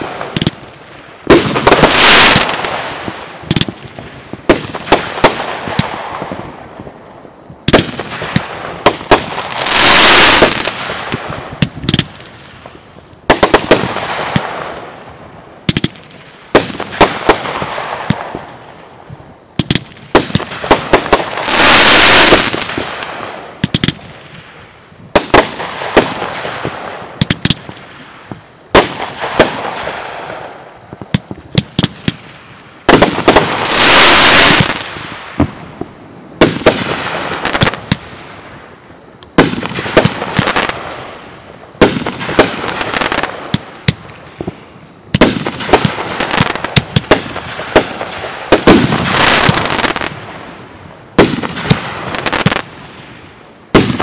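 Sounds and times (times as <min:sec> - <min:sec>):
fireworks shots and bangs: 0:00.0 - 0:06.9, 0:07.6 - 0:18.7, 0:19.5 - 0:38.6, 0:39.3 - 0:54.0
fireworks hissing: 0:09.5 - 0:10.8, 0:21.3 - 0:22.8.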